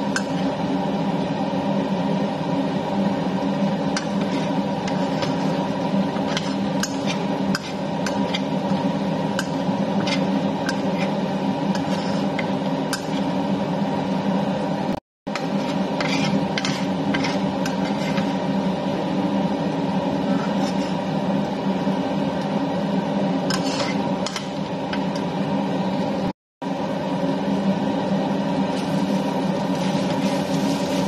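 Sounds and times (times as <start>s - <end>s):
steady hum: 0.0s - 31.0s
metal spatula scraping a wok: 3.9s - 13.4s, 15.3s - 18.6s, 20.2s - 21.2s, 23.4s - 25.1s.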